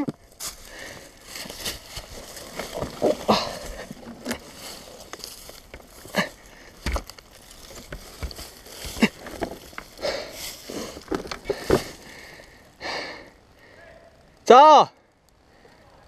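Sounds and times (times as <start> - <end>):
dry leaves rustling: 0.0 - 12.6
knocks and scrapes: 1.3 - 12.0.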